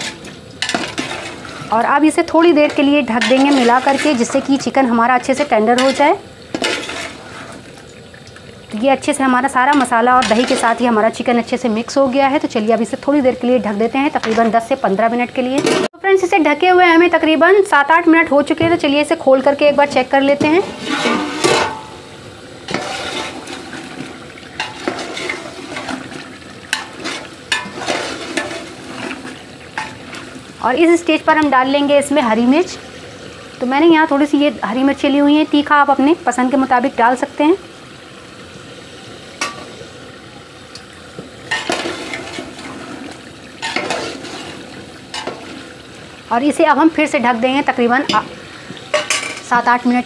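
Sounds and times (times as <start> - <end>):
food sizzling in oil: 0.0 - 50.0
metal spoon scraping pot: 2.6 - 7.6, 9.7 - 10.9, 20.5 - 21.9, 22.7 - 23.7, 24.6 - 30.0, 43.6 - 45.5.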